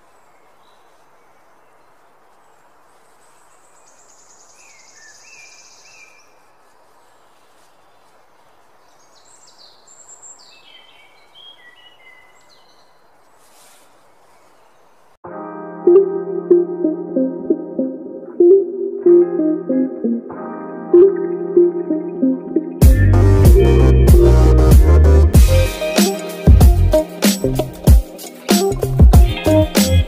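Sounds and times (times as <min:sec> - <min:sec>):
songbirds chirping and trilling: 0:00.0 - 0:15.2.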